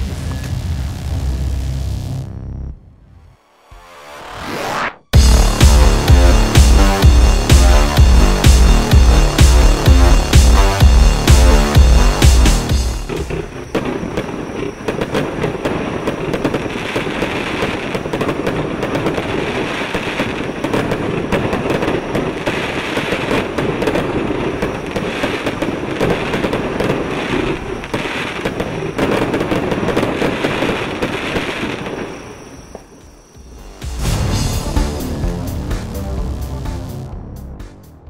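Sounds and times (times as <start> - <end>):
fireworks firing: 5.2 - 34.7.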